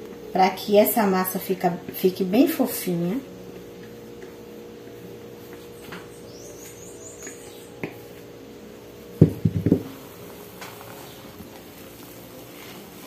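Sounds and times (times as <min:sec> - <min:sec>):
low room hum: 0:00.0 - 0:13.0
faint high chirp: 0:05.8 - 0:08.1.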